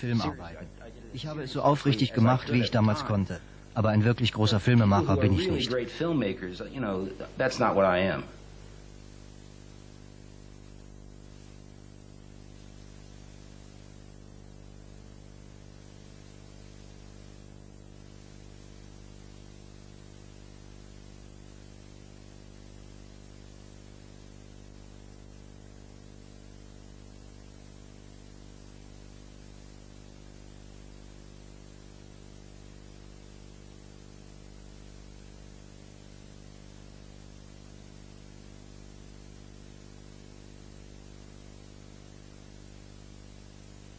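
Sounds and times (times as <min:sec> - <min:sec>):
electrical mains hum: 0:00.0 - 0:43.9
steady hiss: 0:00.0 - 0:43.9.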